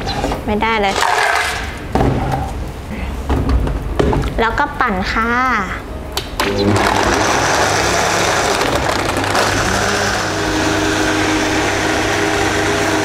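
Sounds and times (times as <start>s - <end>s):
blender churning ice: 6.5s - 13.0s.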